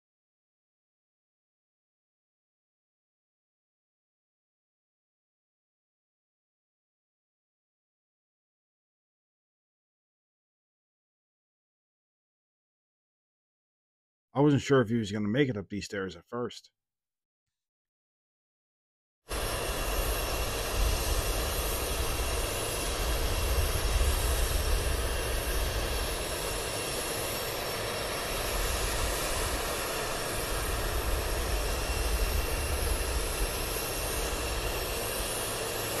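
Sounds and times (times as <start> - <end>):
jet engines rumbling: 19.3 - 36.0.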